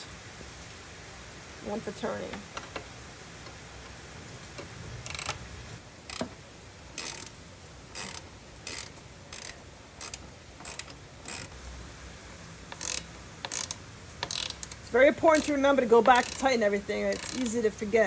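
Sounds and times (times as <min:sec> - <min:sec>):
ratcheting wrench clicking: 0:05.0 - 0:05.4, 0:06.1 - 0:11.5, 0:12.7 - 0:17.6.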